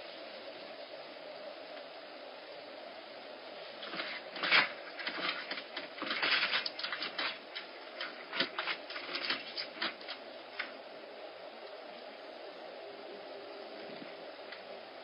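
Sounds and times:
faint steady hiss: 0.0s - 15.0s.

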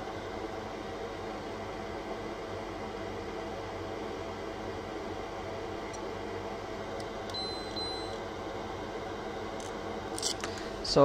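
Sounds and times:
fan hum: 0.0s - 11.0s
low electrical drone: 0.0s - 11.0s
short high-pitched beeps: 7.4s - 8.2s.

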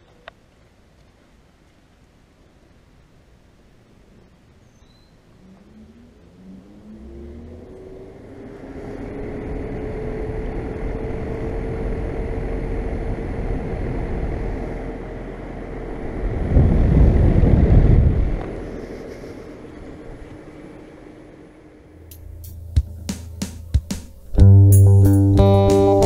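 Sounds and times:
rising motor tone: 5.4s - 26.0s
wind rumble on microphone: 7.5s - 21.6s
air conditioner fan running: 7.9s - 26.0s.

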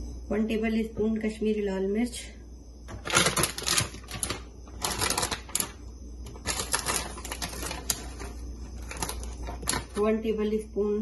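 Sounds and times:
spoon and spice container rattling: 2.9s - 10.0s.

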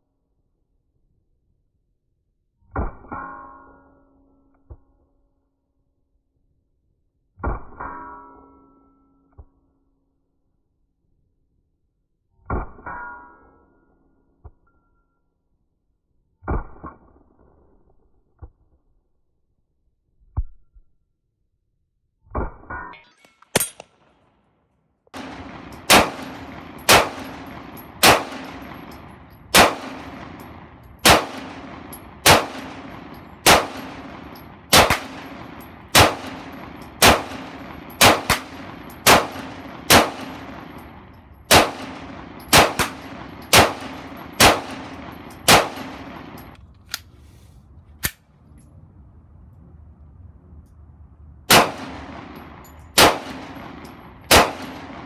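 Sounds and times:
pistol shots with ringing echo: 25.2s - 46.6s, 51.5s - 55.0s.

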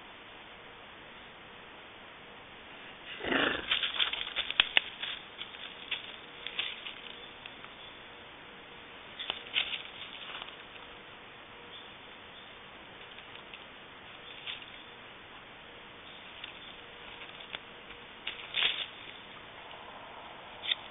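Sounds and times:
twigs and leaves crackling underfoot: 3.0s - 8.1s, 9.0s - 11.8s, 12.4s - 20.9s.

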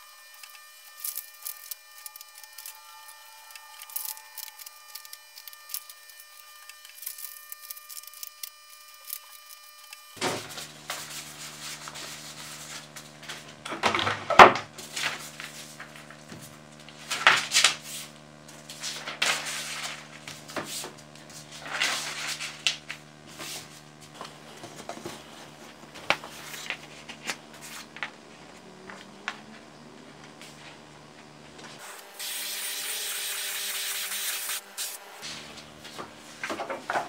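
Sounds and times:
steady low hum: 0.0s - 32.2s
paper rustling and crinkling: 10.2s - 28.1s.

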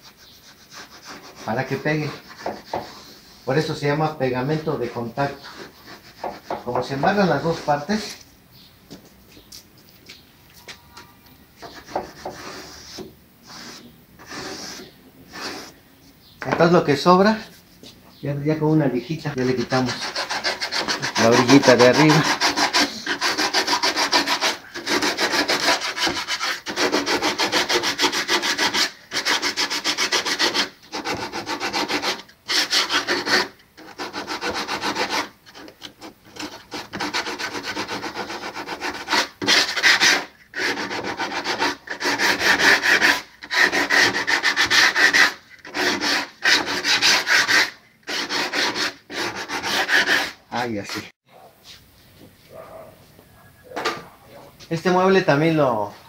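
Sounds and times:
sandpaper sanding wood: 0.0s - 3.6s, 5.2s - 7.9s, 11.6s - 15.8s, 19.3s - 51.1s.

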